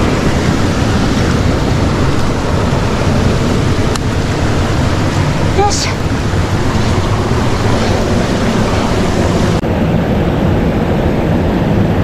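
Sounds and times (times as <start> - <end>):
stream rushing over rocks: 0.0 - 9.6.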